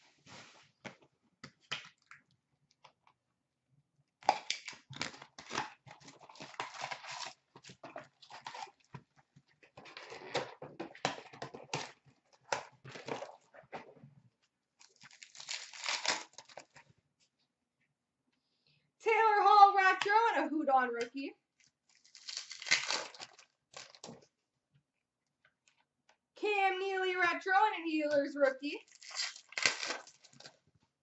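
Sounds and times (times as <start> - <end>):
wrapper tearing and rustling: 4.4 - 8.9, 14.8 - 16.8, 21.9 - 24.2, 28.8 - 30.6.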